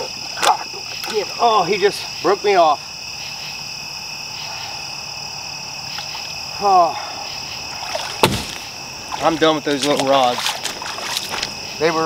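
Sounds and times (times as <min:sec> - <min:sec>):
frogs and insects chorus: 0:00.0 - 0:12.0
sharp knock: 0:08.2 - 0:08.7.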